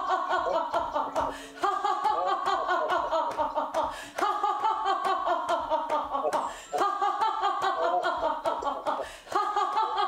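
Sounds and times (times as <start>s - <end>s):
people laughing: 0.0s - 10.0s.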